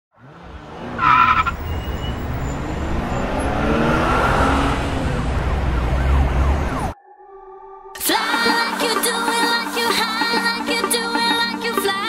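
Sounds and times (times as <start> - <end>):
car engine revving: 0.1 - 7.0
road traffic rumble: 0.1 - 7.0.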